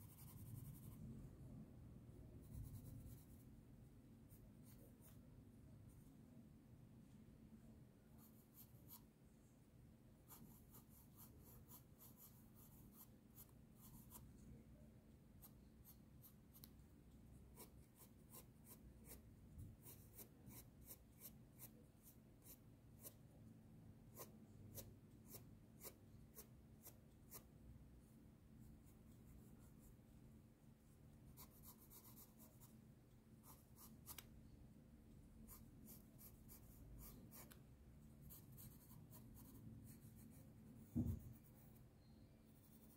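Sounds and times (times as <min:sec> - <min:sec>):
pencil scratching on paper: 0:00.0 - 0:01.1, 0:02.4 - 0:03.5, 0:10.3 - 0:14.4, 0:17.5 - 0:23.2, 0:24.1 - 0:27.5, 0:31.3 - 0:32.8, 0:33.4 - 0:34.2, 0:35.5 - 0:37.6, 0:38.2 - 0:41.8, 0:42.5 - 0:42.9.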